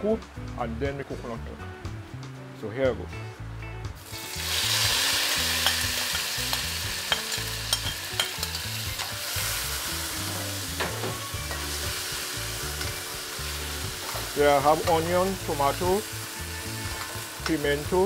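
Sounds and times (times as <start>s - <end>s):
vegetables sizzling in hot oil: 4.0s - 18.0s.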